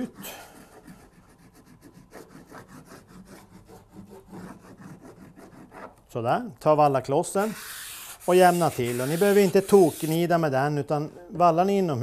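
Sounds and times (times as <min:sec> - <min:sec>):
wax rubbed on ski base: 0:00.0 - 0:05.7, 0:07.4 - 0:10.3.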